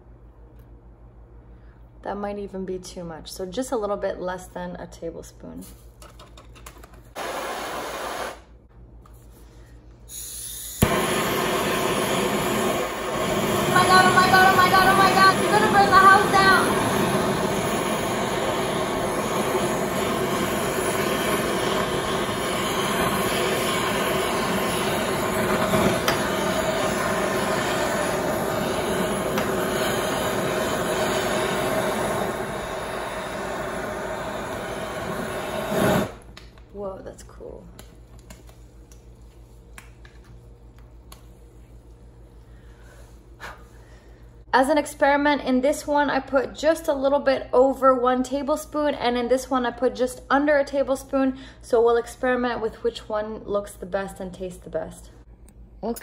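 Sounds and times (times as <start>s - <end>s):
torch flame hissing: 7.1s - 8.5s, 10.1s - 36.4s
butane torch ignition click: 10.1s - 36.7s.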